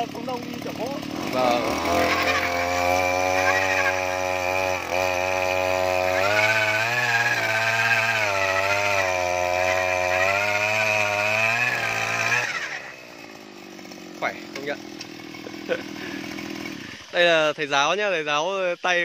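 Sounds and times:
earth auger engine under load: 0.0s - 17.4s.

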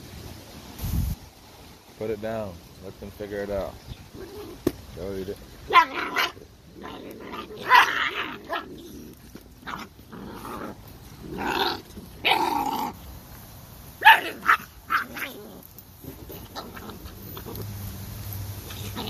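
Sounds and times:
puppies growling and yelping: 4.1s - 4.7s, 5.7s - 13.0s, 14.1s - 18.0s, 18.6s - 19.0s.

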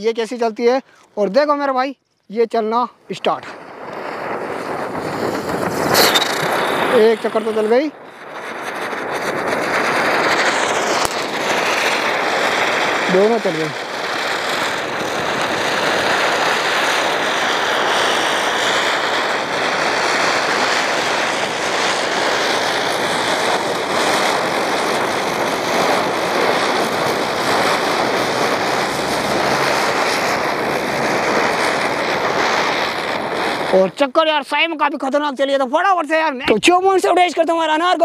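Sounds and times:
hiss of burning sparks: 3.0s - 34.7s
thin high whistle: 5.9s - 7.8s.

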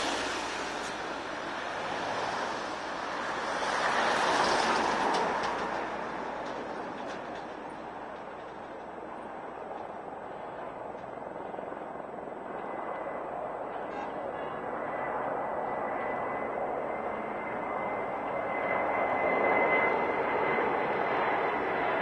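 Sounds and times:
low-flying jet engines rushing: 0.0s - 22.0s.

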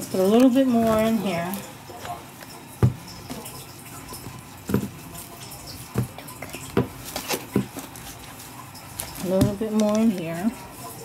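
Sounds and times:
fork knocking plastic bowl: 2.8s - 3.4s, 4.2s - 5.0s, 9.2s - 10.0s.

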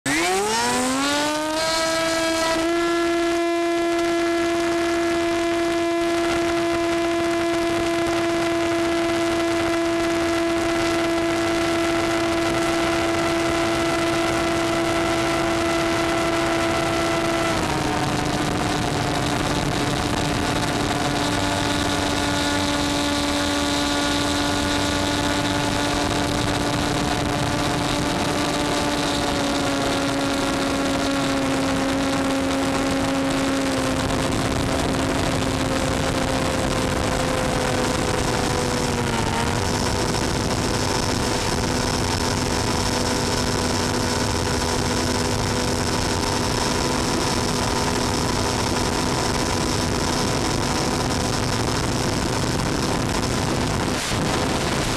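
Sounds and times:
model plane electric motor and propeller: 3.9s - 54.9s
rush of air: 50.7s - 54.9s.

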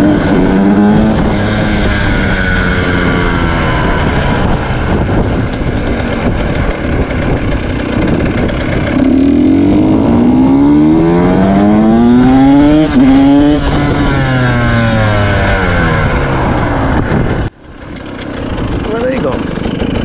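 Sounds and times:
rushing wind noise: 0.0s - 19.0s
two-stroke engine revving: 0.0s - 20.0s.

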